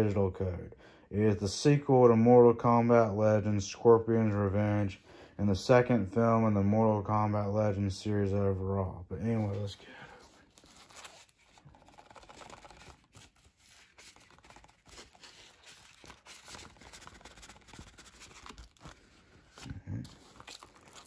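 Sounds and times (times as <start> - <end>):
cardboard and plastic rustling: 9.3 - 21.0.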